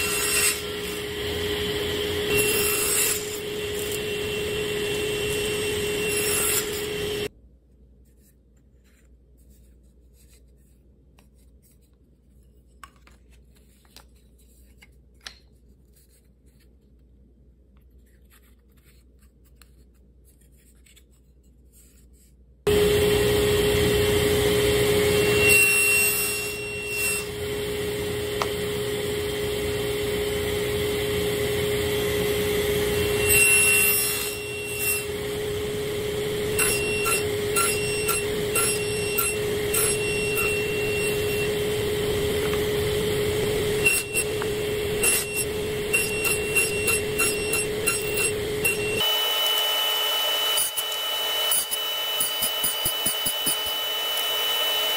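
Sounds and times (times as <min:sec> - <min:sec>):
saw blade cutting wood: 0:00.0 - 0:07.3, 0:22.7 - 0:54.9
table saw whining: 0:00.0 - 0:07.3, 0:22.7 - 0:54.9.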